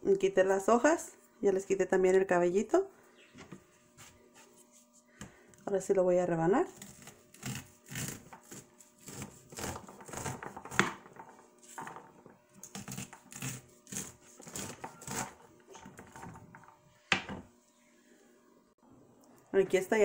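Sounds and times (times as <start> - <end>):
knife slicing corn: 6.8 - 10.9, 12.6 - 16.2.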